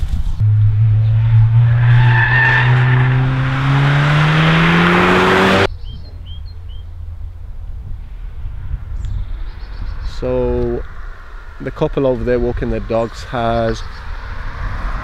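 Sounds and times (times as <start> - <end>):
car engine accelerating: 0.4 - 5.7
bird chirping: 5.7 - 7.0.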